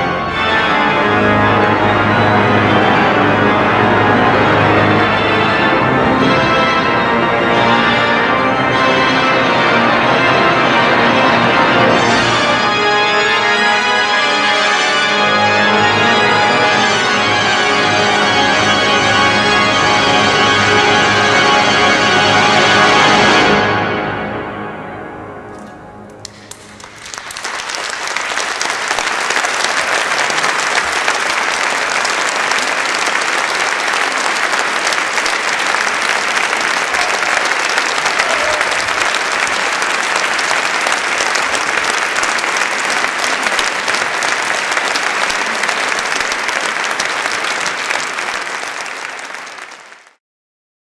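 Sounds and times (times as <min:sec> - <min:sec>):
organ chord: 0:00.0 - 0:49.6
audience applause: 0:26.2 - 0:50.2.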